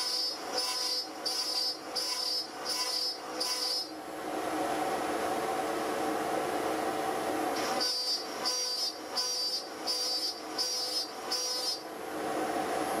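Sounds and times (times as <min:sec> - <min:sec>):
router cutting wood: 0:00.0 - 0:03.9, 0:07.6 - 0:11.8.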